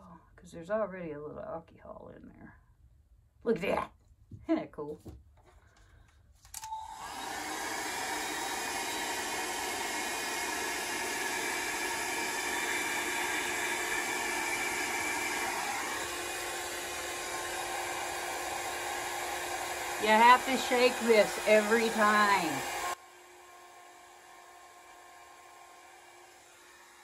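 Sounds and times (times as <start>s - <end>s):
handheld blower motor blowing: 6.6s - 27.0s.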